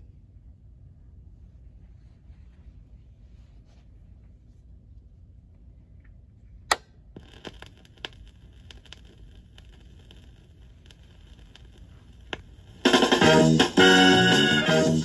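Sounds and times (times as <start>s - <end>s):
vinyl surface hiss and crackles: 1.4s - 5.1s, 7.1s - 15.0s
stylus click on vinyl: 6.7s - 14.6s.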